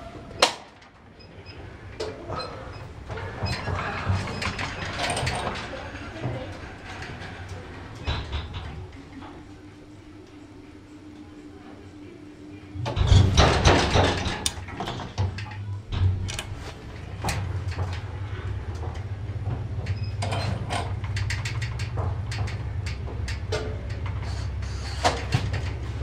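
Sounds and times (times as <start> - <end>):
light clicks and rattles: 12.8 - 24.3.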